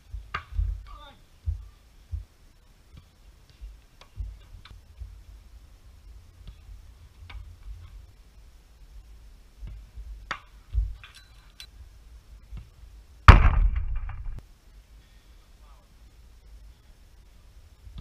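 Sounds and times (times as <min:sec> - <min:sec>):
faint knocks and low thump: 0:00.0 - 0:02.4, 0:13.3 - 0:14.4
football hitting goal net: 0:13.3 - 0:14.4
goal net rattling: 0:13.3 - 0:14.4.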